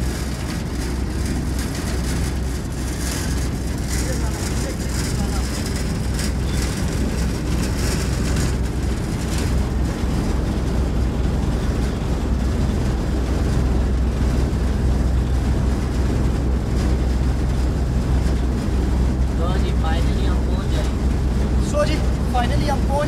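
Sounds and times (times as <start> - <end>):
cable car rumble: 0.0 - 23.0
rushing wind: 0.0 - 23.0.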